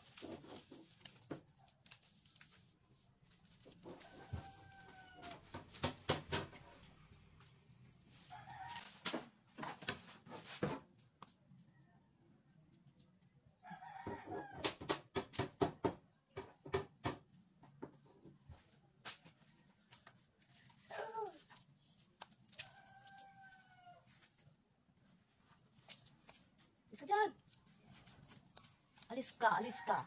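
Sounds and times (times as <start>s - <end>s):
paper rustling and crinkling: 0.0s - 5.8s, 18.5s - 30.0s.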